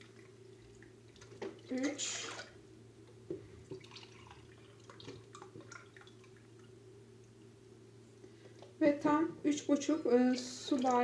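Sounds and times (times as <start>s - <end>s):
low room hum: 0.0s - 11.0s
faint drips: 9.6s - 11.0s.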